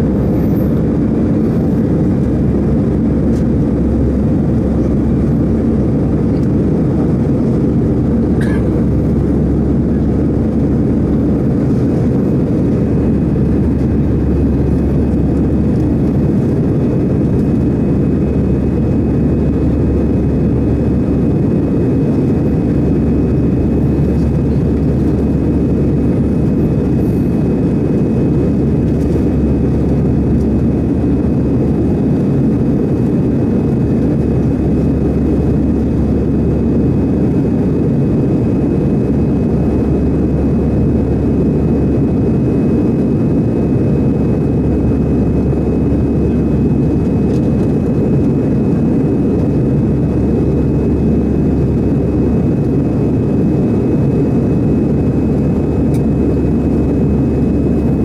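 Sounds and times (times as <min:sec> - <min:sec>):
airplane cabin rumble: 0:00.0 - 0:58.0.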